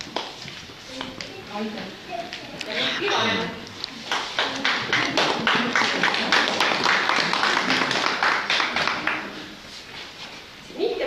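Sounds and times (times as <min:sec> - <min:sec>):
audience clapping: 0:00.0 - 0:00.4, 0:03.0 - 0:09.5.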